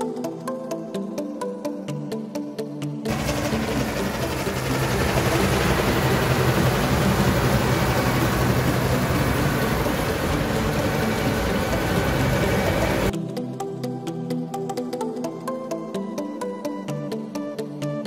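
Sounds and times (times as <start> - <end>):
combine engine hum: 3.1 - 13.1
threshing machinery rushing: 3.1 - 13.1.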